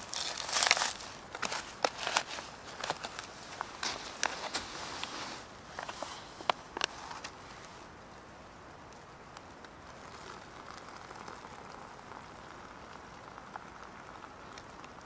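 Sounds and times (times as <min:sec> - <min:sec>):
water poured into pouch: 0:09.9 - 0:14.9.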